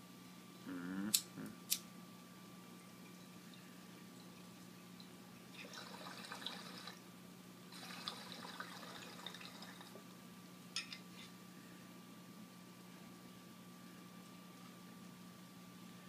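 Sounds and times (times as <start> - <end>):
water bubbling in a bong: 2.8 - 7.0, 7.7 - 10.0.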